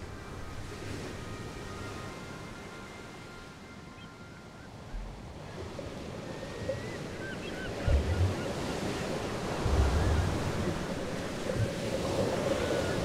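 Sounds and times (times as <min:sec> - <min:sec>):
wind: 0:00.0 - 0:13.0
waves surging: 0:04.9 - 0:13.0.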